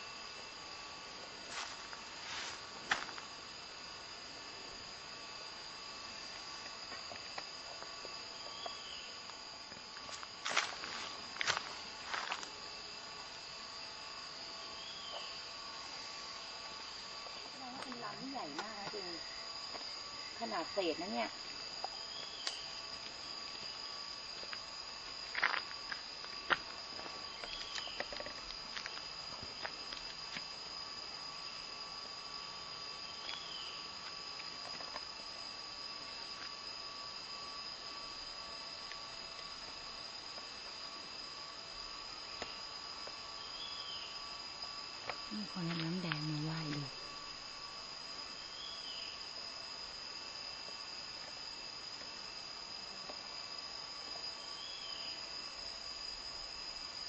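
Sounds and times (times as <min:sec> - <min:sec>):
insects droning: 0:00.0 - 0:57.0
dry leaves crackling underfoot: 0:01.4 - 0:03.3, 0:10.0 - 0:12.6.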